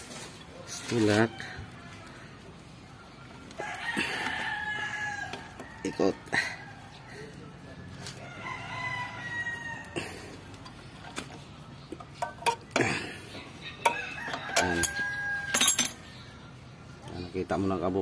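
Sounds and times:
rooster crowing: 0:03.6 - 0:10.2, 0:13.8 - 0:16.0.

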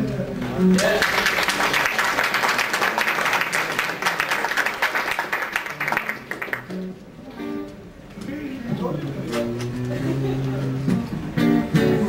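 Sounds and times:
people applauding: 0:00.7 - 0:06.9.

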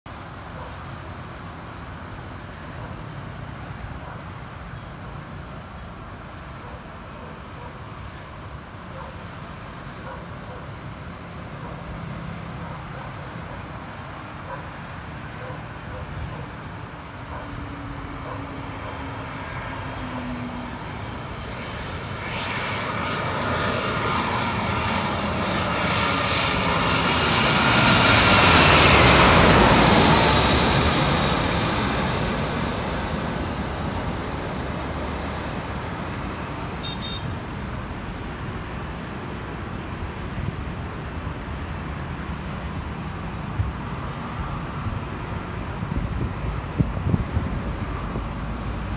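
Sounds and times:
airliner passing overhead: 0:00.1 - 0:48.9.

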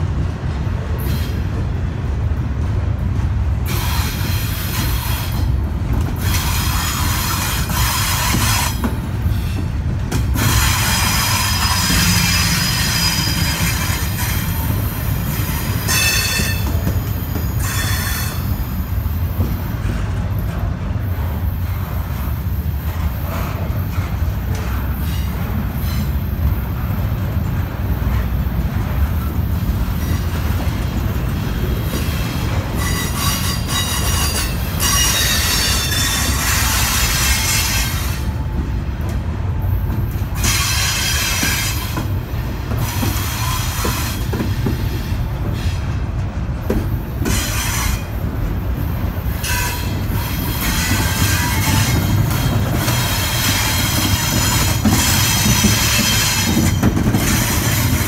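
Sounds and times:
freight train rumbling past: 0:00.0 - 0:58.0
train wheels squealing: 0:10.4 - 0:18.8, 0:24.7 - 0:26.3, 0:32.7 - 0:38.3, 0:40.4 - 0:42.1, 0:42.7 - 0:45.9, 0:47.2 - 0:48.2, 0:49.3 - 0:58.0.

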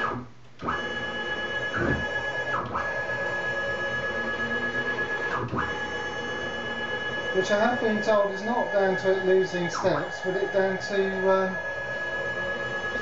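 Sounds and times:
stepper motors high whine: 0:00.0 - 0:13.0
motors grunting: 0:07.4 - 0:12.4.

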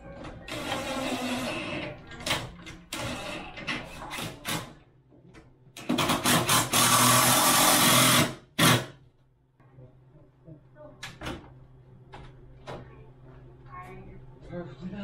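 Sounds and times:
cordless drill running: 0:06.2 - 0:08.8.

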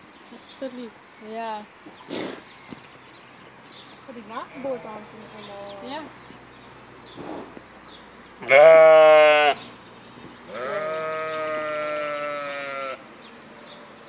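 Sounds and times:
sheep bleating: 0:08.4 - 0:09.7, 0:10.5 - 0:13.1.

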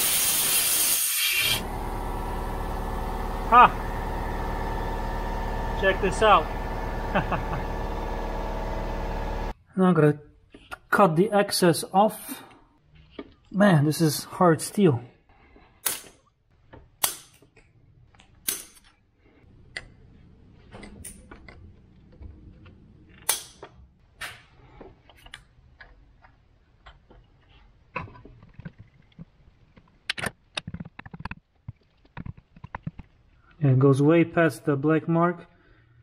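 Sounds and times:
metallic snaps of side cutters: 0:15.8 - 0:16.2, 0:17.0 - 0:17.6, 0:18.4 - 0:18.9, 0:23.2 - 0:24.4.

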